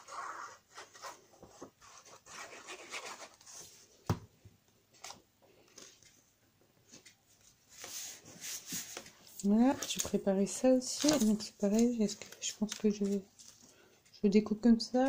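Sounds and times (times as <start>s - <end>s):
paper rustling and scraping: 7.0s - 13.8s.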